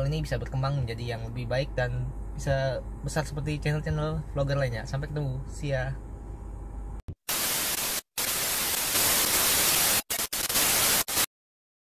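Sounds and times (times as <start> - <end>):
loud static hiss: 7.3 - 11.3.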